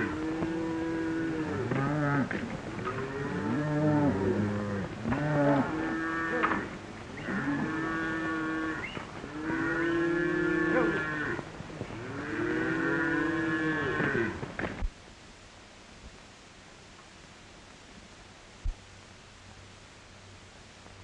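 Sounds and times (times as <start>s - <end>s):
cattle lowing: 0.0s - 14.5s.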